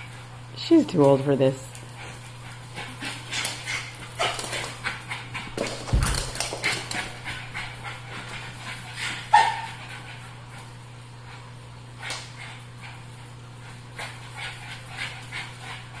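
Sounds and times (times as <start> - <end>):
puppies scuffling and panting: 0.0 - 16.0
puppy yip: 9.3 - 9.7.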